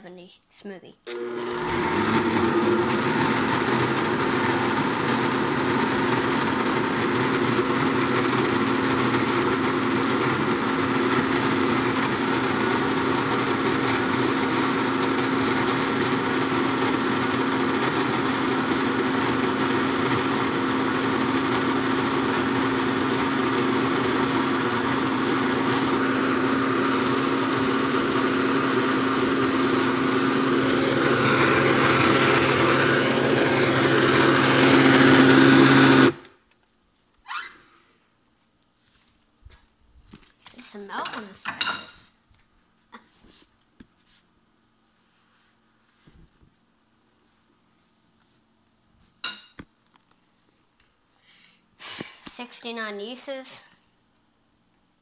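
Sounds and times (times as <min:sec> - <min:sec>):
blender motor whirring: 0:01.0 - 0:36.4.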